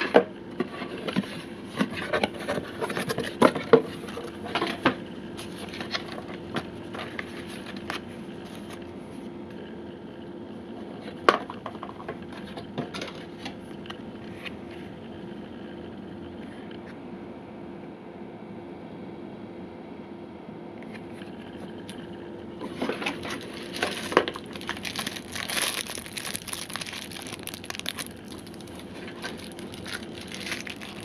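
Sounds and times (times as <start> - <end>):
small clicks and scrapes: 0.0 - 8.8, 22.6 - 31.0
faint steady hum: 0.0 - 31.0
packaging rustling: 22.8 - 31.0.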